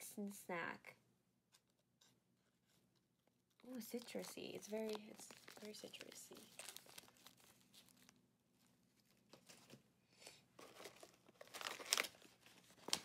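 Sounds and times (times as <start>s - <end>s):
plastic wrappers crinkling: 3.4s - 9.8s, 10.6s - 13.0s.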